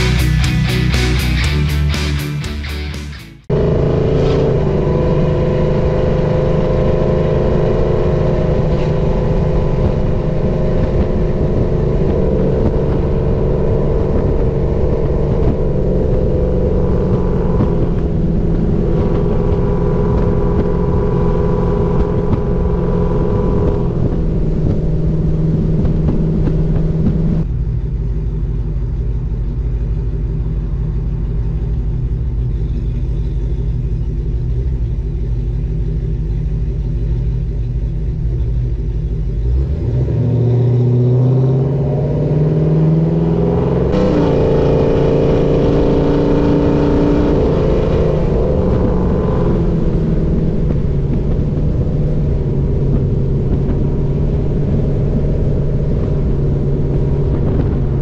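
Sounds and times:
road noise: 0.0 - 58.0
truck exhaust droning: 0.0 - 58.0
wind: 3.5 - 58.0
truck engine idling: 9.4 - 39.8.

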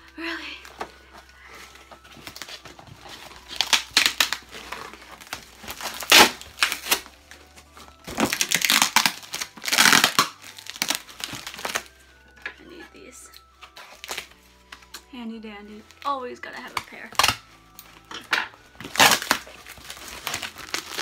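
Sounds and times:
cardboard and paper tearing: 2.2 - 7.1, 8.1 - 11.9, 18.8 - 21.0.

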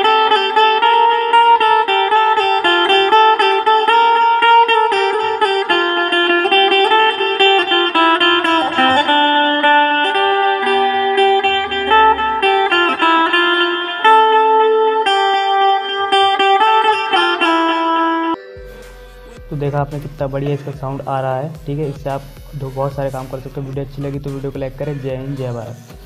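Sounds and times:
plucked metallic string melody: 0.0 - 25.7.

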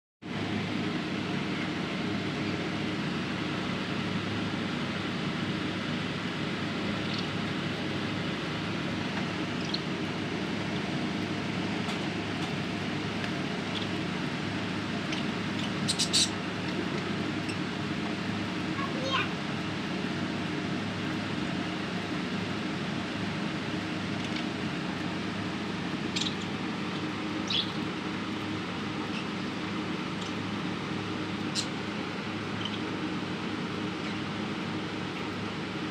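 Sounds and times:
steady low hum: 0.2 - 35.9
budgerigar chirps: 7.0 - 7.3, 9.6 - 9.9, 15.1 - 16.4, 26.1 - 26.5, 27.4 - 27.8, 31.5 - 31.8, 32.6 - 32.9.

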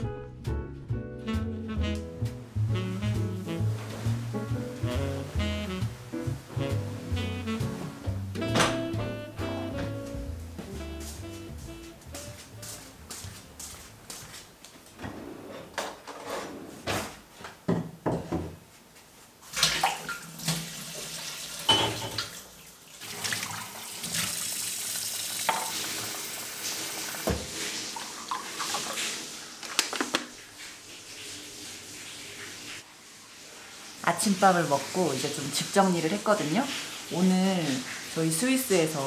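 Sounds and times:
tap running into sink: 21.6 - 22.4, 25.4 - 26.2, 27.1 - 30.4
dishes clattering: 21.7 - 22.4.

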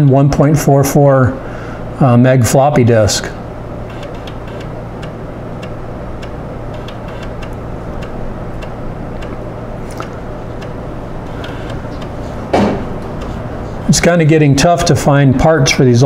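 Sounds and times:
computer whir and hum: 0.0 - 16.0
floppy drive ticking: 3.6 - 14.8.

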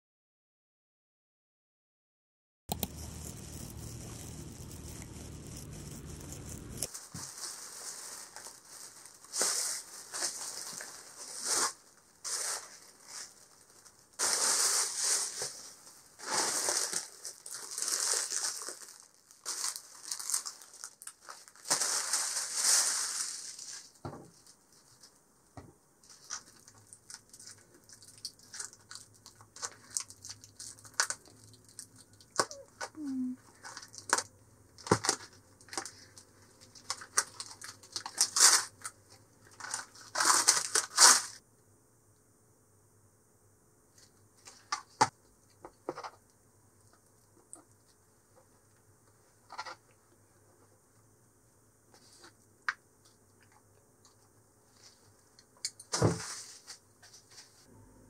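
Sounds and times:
plastic film crackling: 2.7 - 24.0, 26.1 - 33.0, 33.6 - 41.4
plastic bag rustling: 6.6 - 25.1, 33.5 - 41.4.

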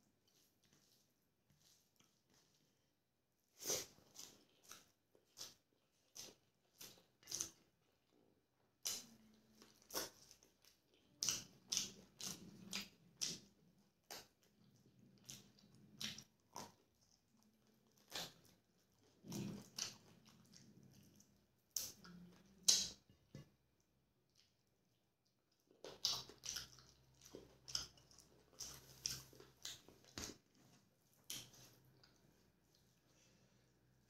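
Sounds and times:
chewing and lip-smacking: 0.2 - 2.8, 3.6 - 34.0
biting meat off a bone: 8.8 - 23.5, 25.7 - 30.4.

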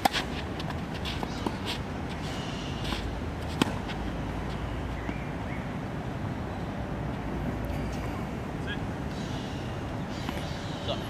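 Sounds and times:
tennis ball struck by racket: 0.0 - 1.8, 2.9 - 4.0
footsteps on court: 0.0 - 2.2
outdoor background noise: 0.0 - 11.0.

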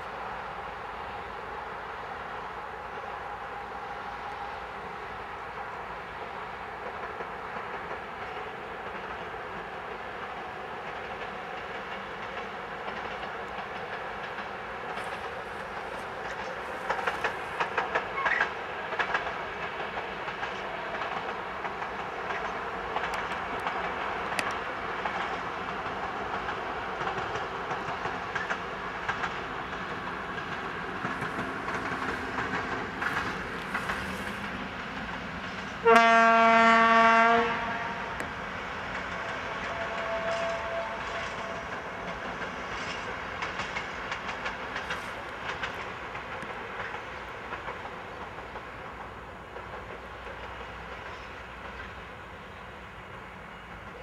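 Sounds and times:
diesel locomotive engine running: 0.0 - 54.0
train wheels clicking over rail joints: 4.0 - 54.0
locomotive horn blast: 35.8 - 38.2, 39.2 - 41.7.

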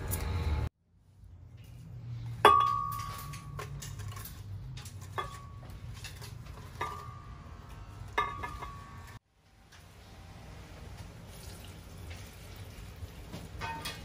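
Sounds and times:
kitchenware clinking: 2.4 - 9.2, 13.4 - 14.0.

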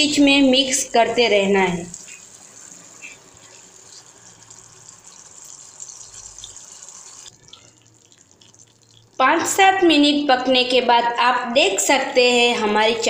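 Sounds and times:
sauce simmering and sizzling: 1.8 - 9.6.

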